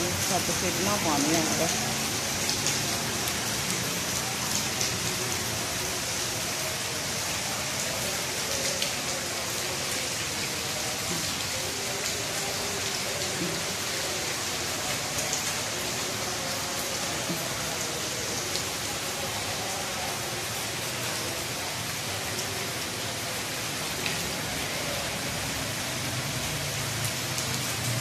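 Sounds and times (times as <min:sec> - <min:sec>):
sharp water drips: 0:00.0 - 0:28.0
steady rain on wet pavement: 0:00.0 - 0:28.0.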